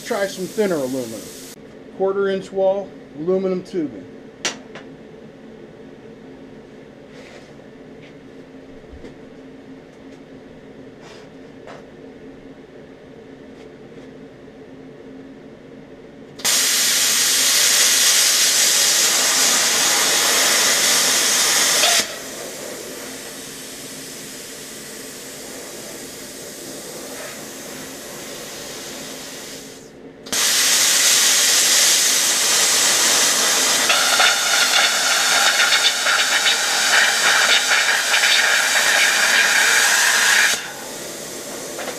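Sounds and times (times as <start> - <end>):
compressed air hissing through torch: 0.0 - 1.6, 16.4 - 41.9.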